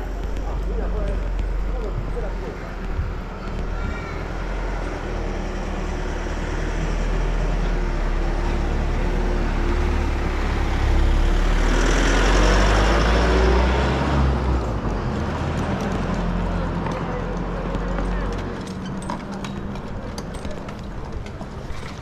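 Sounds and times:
traffic rumble: 0:00.0 - 0:22.0
vehicle passing close by: 0:08.1 - 0:16.8.

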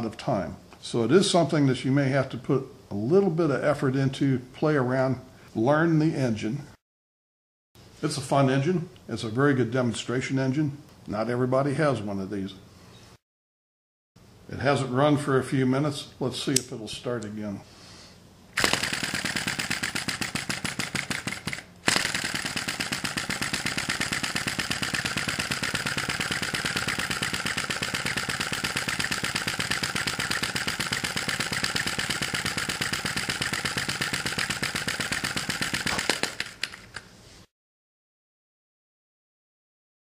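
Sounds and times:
model engine running: 0:18.6 - 0:37.0.

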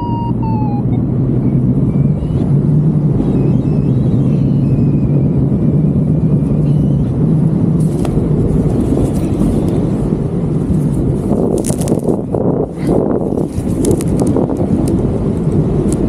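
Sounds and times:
faint wavering high tones: 0:00.0 - 0:02.5
strong wind on microphone: 0:00.0 - 0:16.0.

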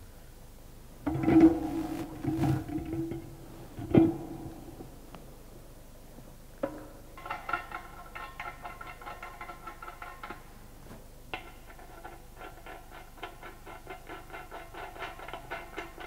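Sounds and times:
steel drum ringing faintly: 0:01.1 - 0:03.5.

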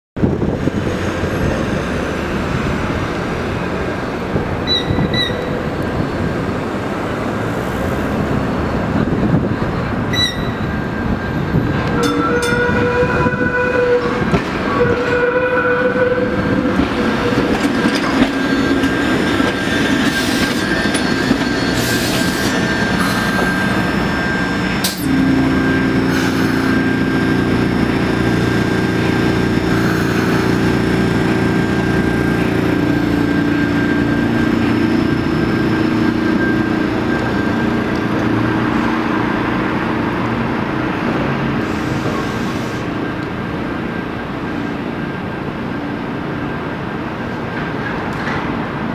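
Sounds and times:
trolley running on track: 0:00.2 - 0:48.9
trolley humming: 0:00.4 - 0:48.9
wheels squealing: 0:04.6 - 0:05.7, 0:10.0 - 0:38.9.

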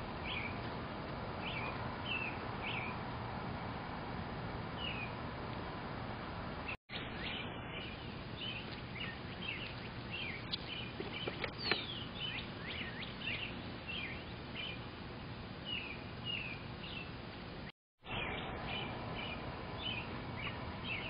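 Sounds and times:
birds chirping: 0:00.0 - 0:03.9, 0:04.7 - 0:05.2, 0:06.6 - 0:21.0.

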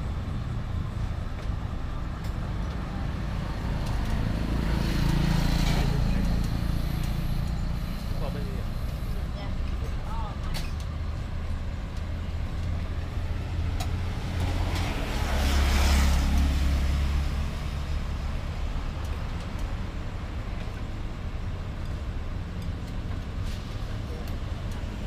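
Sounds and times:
road traffic: 0:00.0 - 0:25.0
vehicle passing close: 0:03.0 - 0:09.2, 0:13.4 - 0:18.3.

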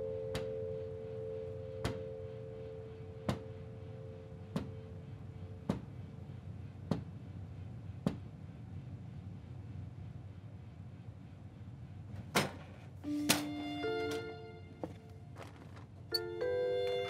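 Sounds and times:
low steady hum: 0:00.0 - 0:17.0.

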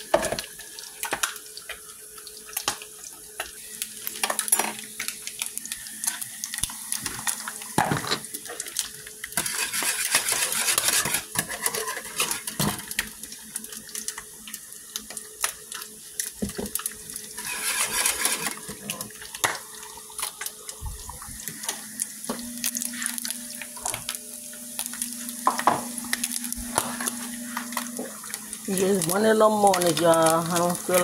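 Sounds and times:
water boiling in a saucepan: 0:00.0 - 0:31.0
whisk scraping a pot: 0:09.4 - 0:12.6, 0:17.3 - 0:19.0.

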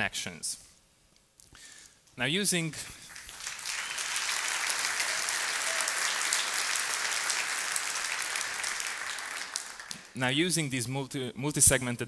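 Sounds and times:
audience applauding: 0:03.0 - 0:10.2.

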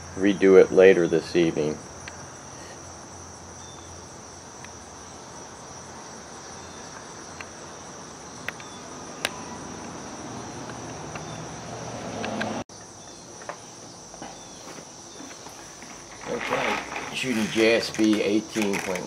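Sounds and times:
distant traffic hum: 0:00.0 - 0:19.0
high-pitched insect chorus: 0:00.0 - 0:19.0.

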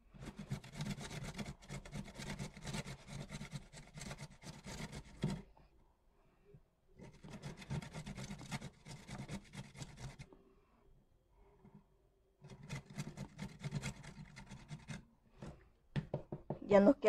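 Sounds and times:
carrot grating on metal grater: 0:00.1 - 0:05.4, 0:07.0 - 0:10.3, 0:12.4 - 0:15.0.

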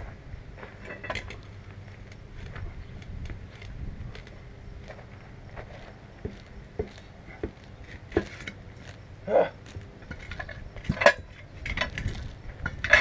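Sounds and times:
metal clanks from tire changer: 0:00.8 - 0:01.4, 0:07.9 - 0:08.6, 0:10.0 - 0:13.0.

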